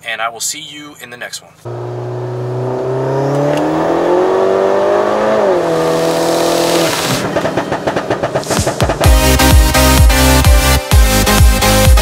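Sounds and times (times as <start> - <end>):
car engine accelerating: 1.7 - 9.5
rhythmic beat: 6.7 - 12.0.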